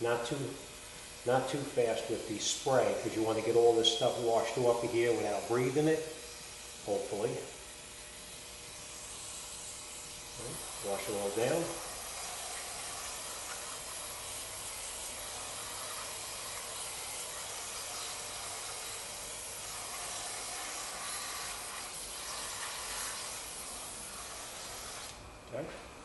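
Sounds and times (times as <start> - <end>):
aerosol can spraying hiss: 8.5 - 25.2.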